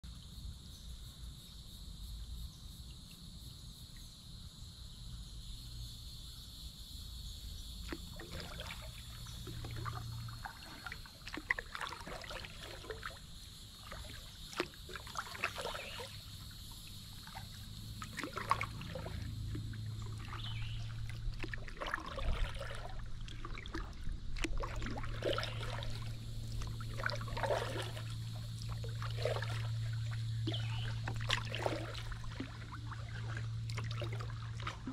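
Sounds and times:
kayak paddle splashing water: 7.8s - 34.9s.

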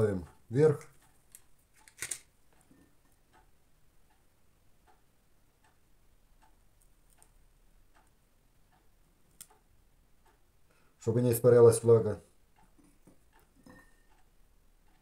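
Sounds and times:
faint ticking: 0.0s - 15.0s
click: 8.7s - 9.6s.

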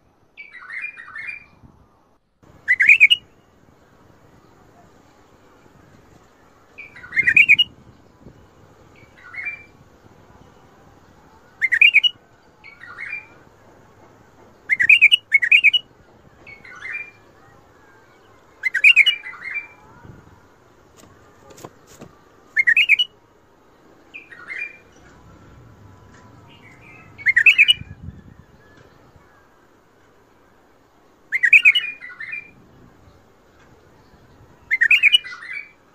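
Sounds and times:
bulbul singing: 2.6s - 3.6s, 6.2s - 13.5s, 14.6s - 15.9s, 16.5s - 20.1s, 21.0s - 23.2s, 23.9s - 29.4s, 31.3s - 32.6s, 34.6s - 35.8s.

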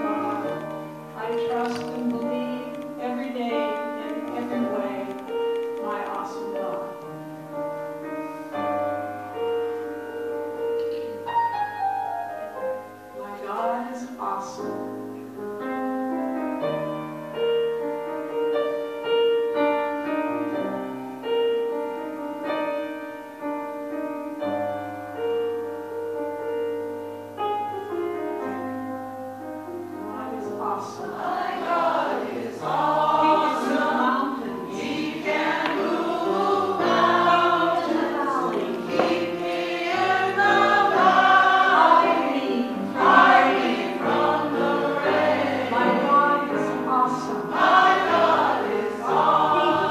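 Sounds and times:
gospel choir singing: 0.0s - 2.0s, 3.0s - 5.2s, 30.1s - 49.9s.

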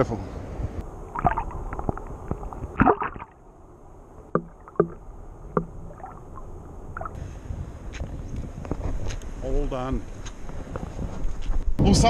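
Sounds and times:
water splashing: 0.9s - 3.5s, 4.2s - 7.2s.

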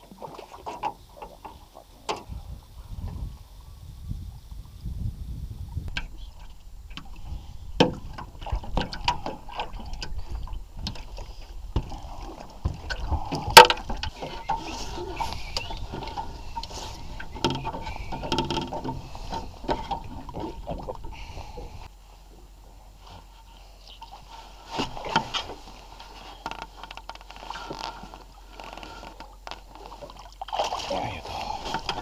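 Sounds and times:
clatter and knocks on boat: 0.0s - 2.4s, 5.9s - 21.7s, 24.7s - 30.9s, 31.5s - 32.0s
water splashing at hull: 0.0s - 3.6s, 5.6s - 23.4s, 24.0s - 32.0s.

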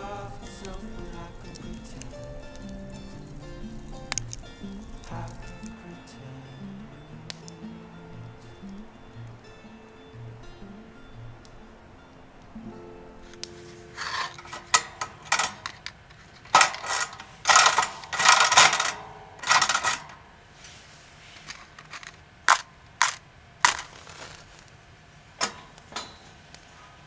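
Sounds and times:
sharp clicks: 0.0s - 6.0s, 7.3s - 7.6s
metal parts clinking and rattling: 14.0s - 20.2s, 21.4s - 24.6s.

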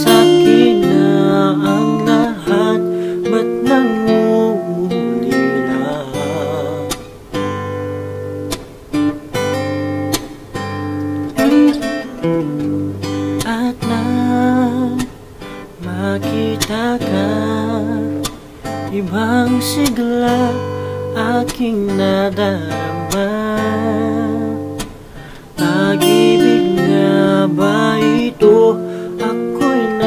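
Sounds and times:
man singing a pop ballad: 0.0s - 7.2s, 13.4s - 15.2s, 15.8s - 30.0s
strummed acoustic guitar: 0.0s - 30.0s.

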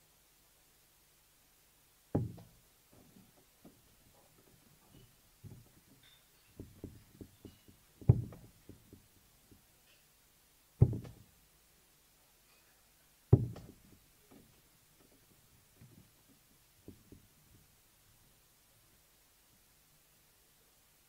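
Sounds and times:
darts thudding into dartboard: 2.2s - 2.6s, 6.6s - 9.0s, 10.8s - 11.2s, 13.3s - 13.9s
faint small knocks: 2.2s - 10.1s, 10.8s - 11.3s, 12.5s - 17.7s.

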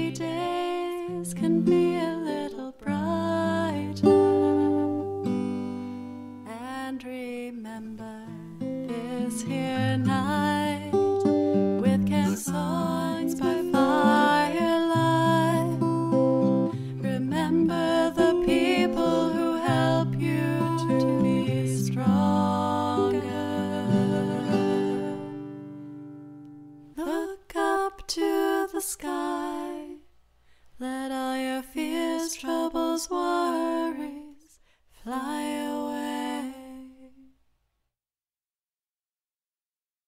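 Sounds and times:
person singing: 0.0s - 5.3s, 6.5s - 25.5s, 27.0s - 30.0s
acoustic guitar strumming: 3.9s - 6.5s, 8.4s - 26.9s.

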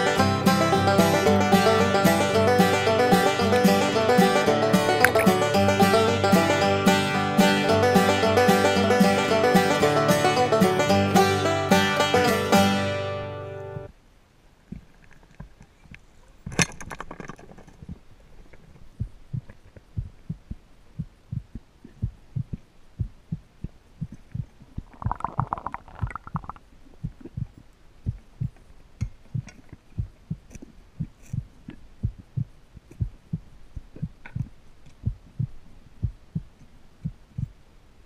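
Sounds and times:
low underwater thumps: 18.8s - 37.6s.

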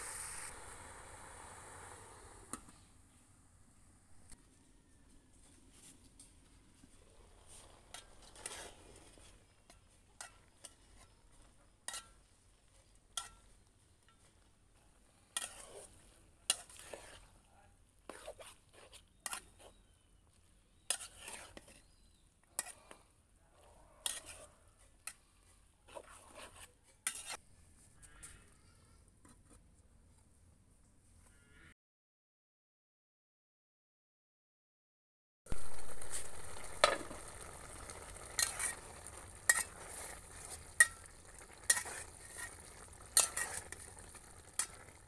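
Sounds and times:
metal spatula scraping a pot: 6.8s - 20.0s, 20.8s - 27.4s, 35.6s - 45.0s.

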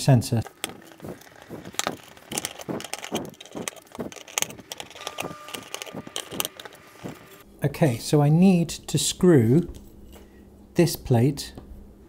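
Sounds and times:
metal parts clicking and clinking: 0.4s - 7.4s.

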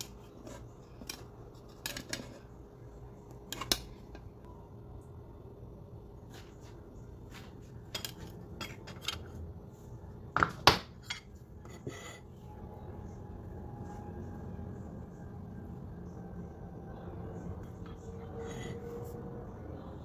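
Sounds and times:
metal spoon scraping a plate: 0.0s - 2.5s, 3.5s - 4.1s, 11.0s - 12.4s.

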